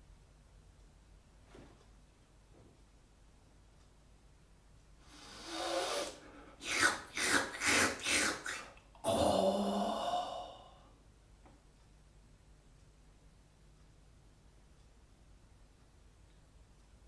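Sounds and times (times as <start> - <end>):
person breathing noises: 5.0 - 11.0.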